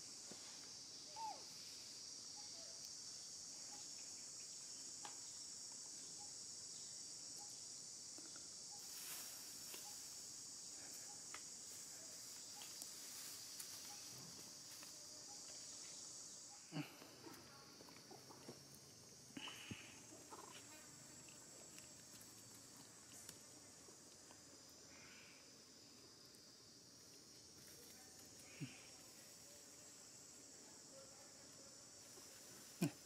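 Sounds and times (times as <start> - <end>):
high-pitched insect drone: 0.5 - 17.1.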